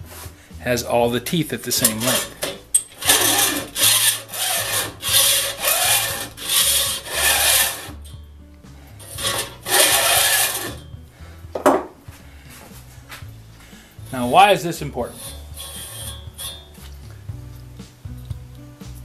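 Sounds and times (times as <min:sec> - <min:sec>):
file scraping saw teeth: 0:01.8 - 0:08.1, 0:09.0 - 0:10.9, 0:14.1 - 0:17.0.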